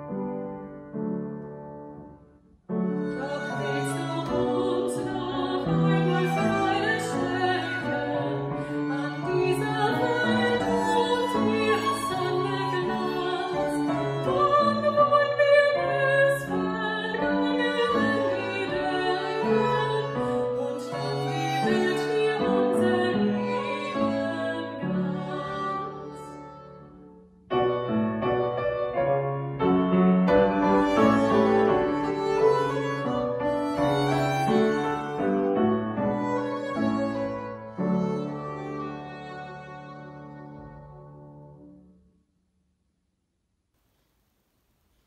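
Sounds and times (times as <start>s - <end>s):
upright piano: 0.0s - 41.9s
violin: 2.7s - 28.7s, 30.2s - 41.7s
woman singing: 3.1s - 26.4s.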